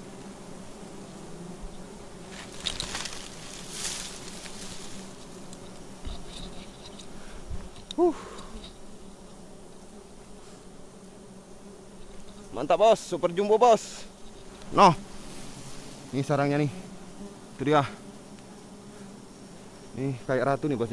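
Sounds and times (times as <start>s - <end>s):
honeybees buzzing: 0.0s - 20.9s
rustling handling noise: 2.3s - 7.9s.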